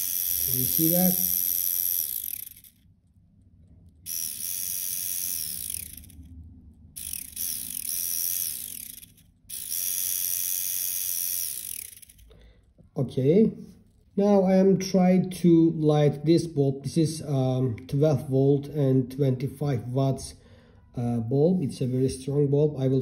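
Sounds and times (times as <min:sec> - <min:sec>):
hand blender motor whining: 0:00.0 - 0:02.7, 0:04.1 - 0:06.2, 0:07.0 - 0:12.3.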